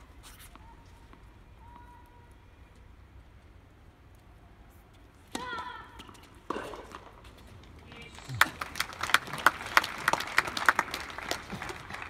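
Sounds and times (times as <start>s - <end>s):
crowd clapping: 7.9s - 12.0s.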